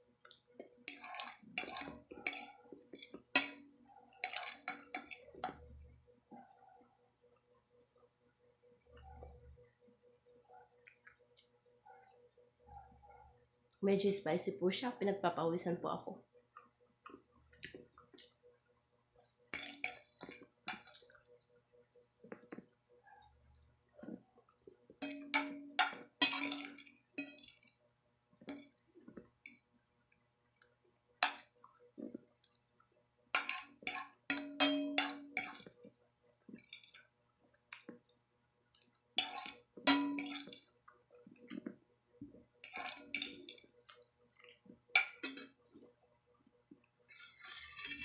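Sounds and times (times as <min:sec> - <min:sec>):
metal fork scraping a plate: 0:00.9 - 0:03.6, 0:04.2 - 0:05.6, 0:19.6 - 0:21.2, 0:25.0 - 0:27.8, 0:33.4 - 0:35.8, 0:36.6 - 0:37.0, 0:39.2 - 0:40.7, 0:42.6 - 0:43.7, 0:45.0 - 0:45.5, 0:47.1 - 0:48.0.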